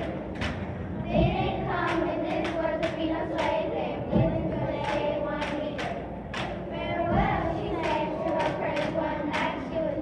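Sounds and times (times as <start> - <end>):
hand claps: 0.0 - 0.7, 1.8 - 3.7, 4.8 - 6.6, 7.8 - 9.6
children singing together: 0.0 - 10.0.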